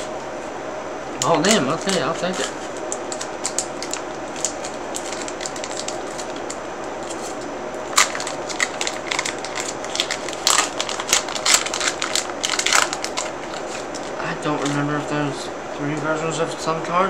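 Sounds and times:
cards rustling: 0:01.3 - 0:14.8
foil wrapper crinkling: 0:01.3 - 0:14.8.

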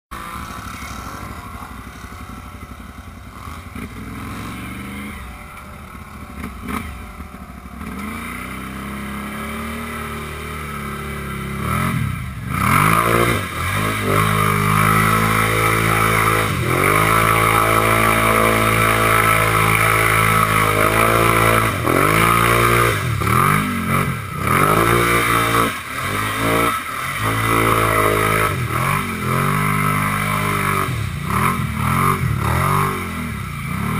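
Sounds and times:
quad engine revving: 0:00.1 - 0:33.9
vehicle splashing through mud: 0:12.5 - 0:33.9.

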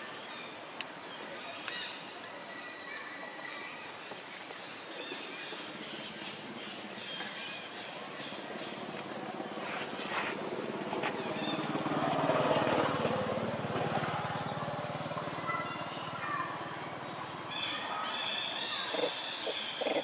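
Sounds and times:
vehicle engine passing: 0:08.2 - 0:19.6.

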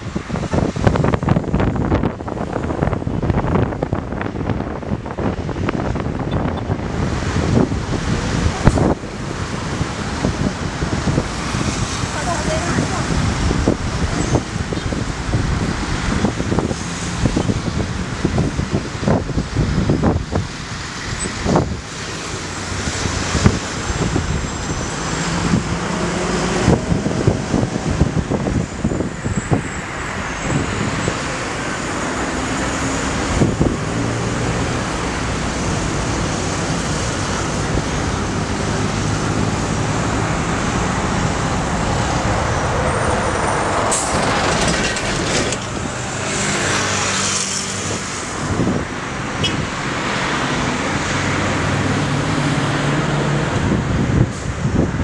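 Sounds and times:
road traffic passing: 0:00.0 - 0:55.0.

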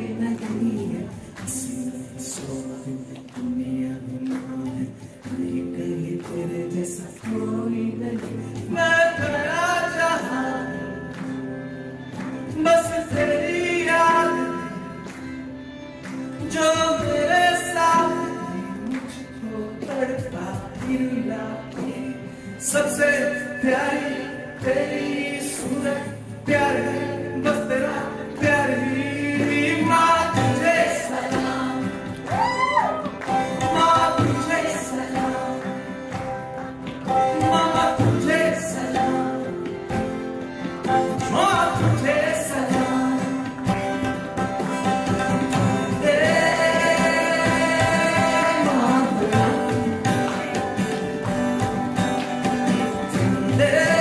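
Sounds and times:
man singing: 0:00.0 - 0:11.2, 0:12.5 - 0:15.1, 0:16.4 - 0:32.3, 0:33.3 - 0:36.4, 0:37.1 - 0:40.0, 0:40.8 - 0:50.8, 0:52.8 - 0:54.0
acoustic guitar: 0:00.0 - 0:54.0
cajon: 0:00.0 - 0:54.0
harmonium drone: 0:10.2 - 0:19.9, 0:33.1 - 0:54.0
voices singing along: 0:22.8 - 0:36.4, 0:37.1 - 0:40.1, 0:45.6 - 0:50.4
tabla: 0:39.8 - 0:54.0.

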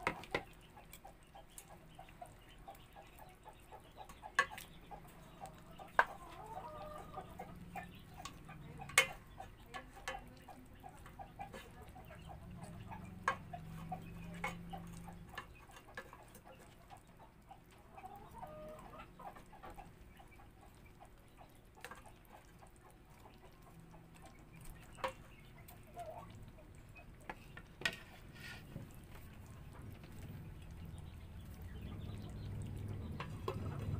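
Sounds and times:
sauce simmering: 0:00.0 - 0:33.9
wooden spatula scraping a pot: 0:11.0 - 0:11.9, 0:13.2 - 0:16.4, 0:27.3 - 0:29.3.

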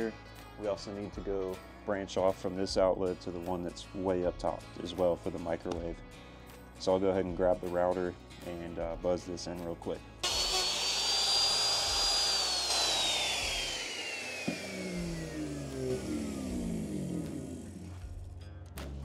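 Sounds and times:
router whining and spinning down: 0:10.2 - 0:18.2.

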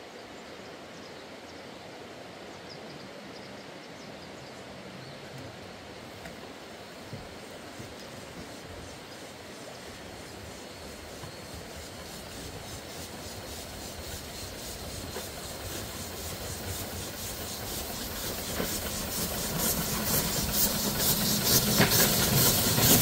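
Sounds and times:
steam locomotive running: 0:06.4 - 0:23.0.

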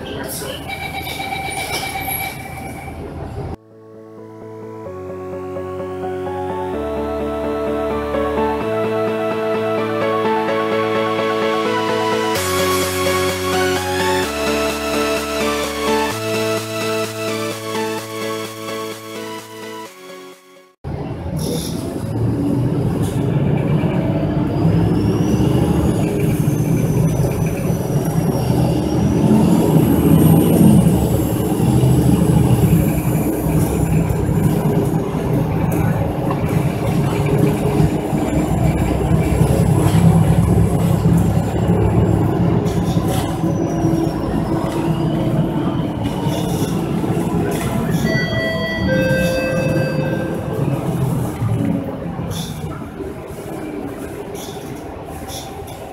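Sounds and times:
bus engine and road drone: 0:20.8 - 0:55.9
electronic tones: 0:43.2 - 0:51.4.

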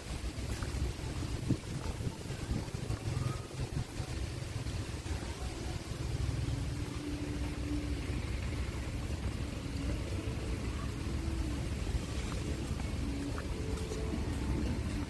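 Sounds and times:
wind buffeting microphone: 0:00.0 - 0:06.0
faint hum: 0:00.0 - 0:15.0.

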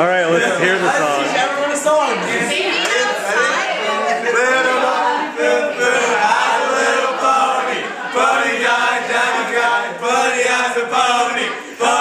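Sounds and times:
young men singing together: 0:00.3 - 0:12.0.

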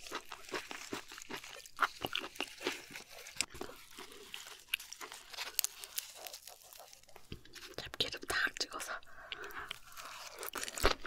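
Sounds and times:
leaf crinkling being folded: 0:00.0 - 0:08.0.

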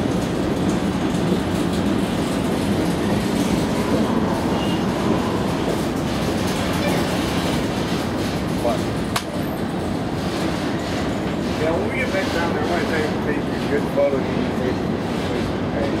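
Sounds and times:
steel train wheels on rail: 0:00.0 - 0:16.0.

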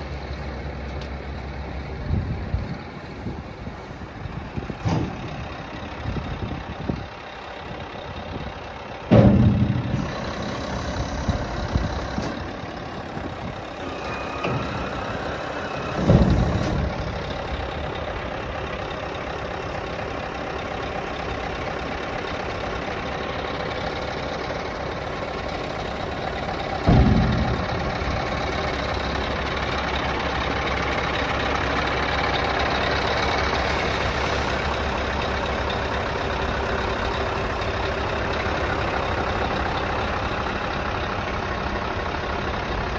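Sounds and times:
diesel truck engine running: 0:00.0 - 0:42.9
loud metal knocks: 0:09.1 - 0:19.1, 0:24.8 - 0:31.7.

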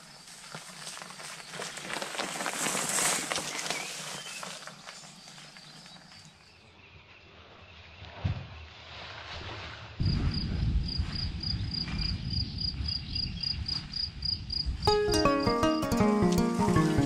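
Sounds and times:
cricket chirping: 0:10.0 - 0:14.9
music: 0:14.9 - 0:17.0.

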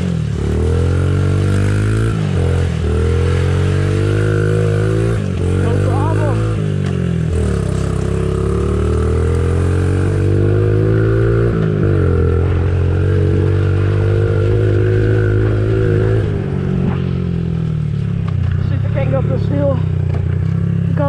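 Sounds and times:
pit bike engine revving: 0:00.0 - 0:21.0.

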